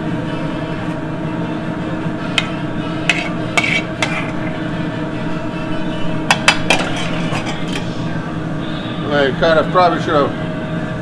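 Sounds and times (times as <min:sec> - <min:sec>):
kitchen ventilation hum: 0:00.0 - 0:11.0
metal spatula scraping a pan: 0:02.4 - 0:04.6, 0:06.3 - 0:07.9.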